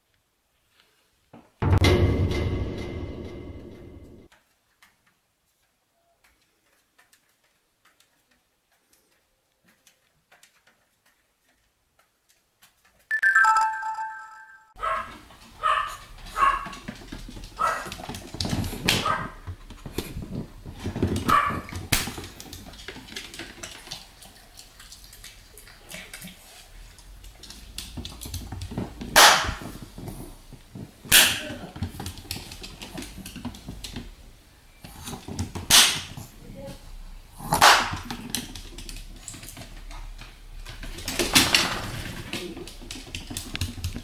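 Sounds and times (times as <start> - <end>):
small dog barking: 14.8 - 16.7, 17.6 - 17.9, 19.0 - 19.4, 21.2 - 21.7.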